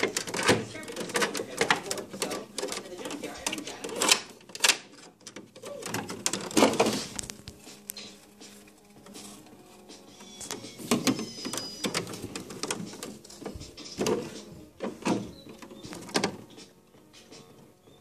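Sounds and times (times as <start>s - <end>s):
knocks and scrapes on plastic toy: 0.0s - 7.3s
quiet rustling: 6.2s - 17.7s.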